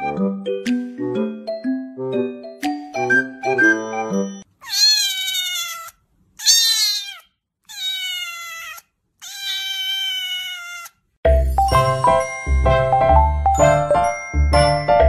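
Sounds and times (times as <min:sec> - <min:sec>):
music: 0:00.0 - 0:04.4, 0:11.2 - 0:15.0
kitten meowing: 0:04.6 - 0:11.0.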